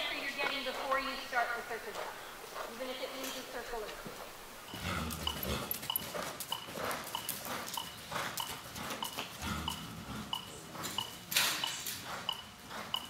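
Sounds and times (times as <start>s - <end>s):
metronome double-pitched beeps: 4.7s - 13.0s.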